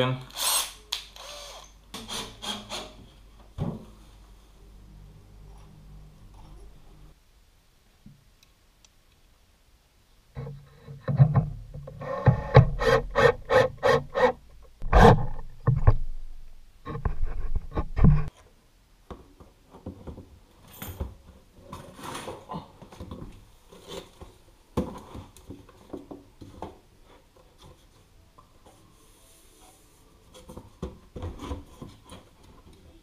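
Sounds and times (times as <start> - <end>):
metal knocking and scraping on wood: 10.4 - 13.8, 14.8 - 16.1, 16.8 - 18.3.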